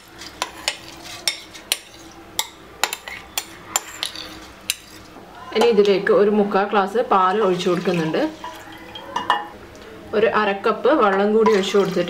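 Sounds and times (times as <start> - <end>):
metal spoon scraping a plate: 0.0 - 5.1.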